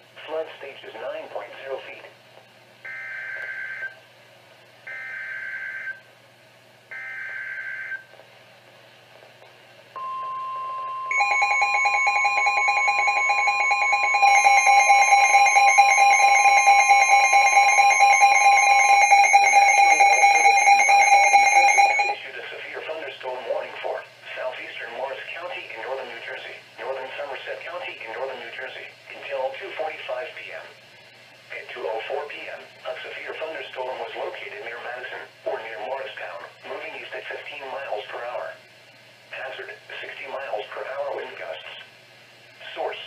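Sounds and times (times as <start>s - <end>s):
fast-pulsing alarm beeps: 10.0s - 22.2s
steady warning tone: 10.0s - 22.2s
warbling data bursts: 11.1s - 22.2s.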